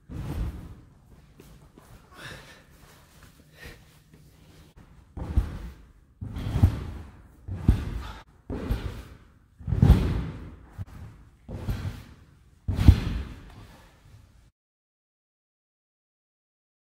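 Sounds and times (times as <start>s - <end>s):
body landing thuds: 5.1s - 13.5s.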